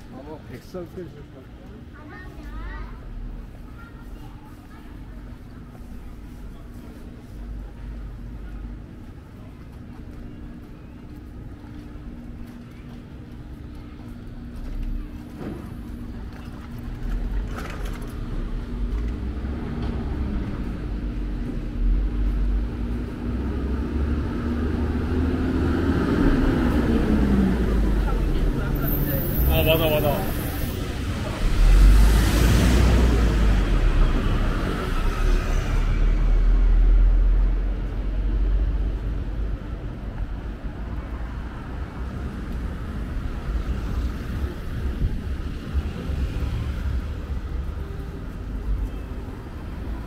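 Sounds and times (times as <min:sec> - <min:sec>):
vehicle engines rumbling: 0:00.0 - 0:50.0
vehicle passing by: 0:23.2 - 0:39.5.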